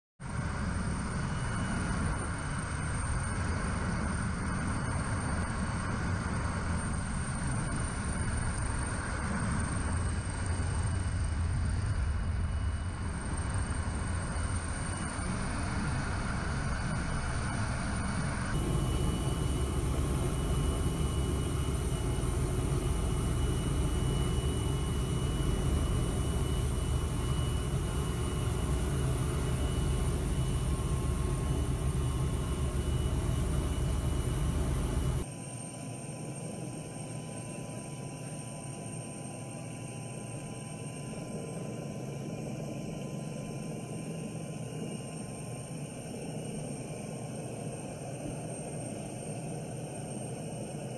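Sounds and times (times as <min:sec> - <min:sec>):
helicopter rotor rumble: 0:00.2 - 0:50.9
high whine: 0:00.3 - 0:35.3.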